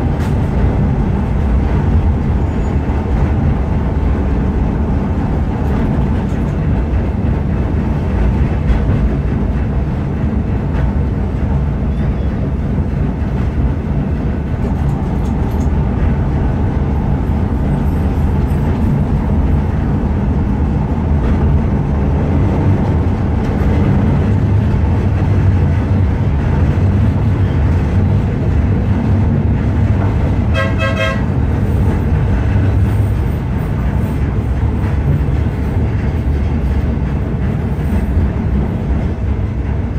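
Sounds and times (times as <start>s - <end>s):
tram rumbling on rails: 0.0s - 39.9s
tram horn note: 30.5s - 31.3s.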